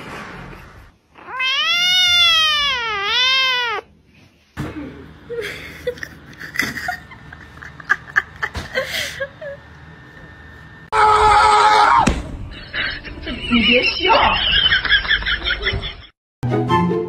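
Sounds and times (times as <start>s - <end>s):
kitten meowing: 1.2s - 3.9s.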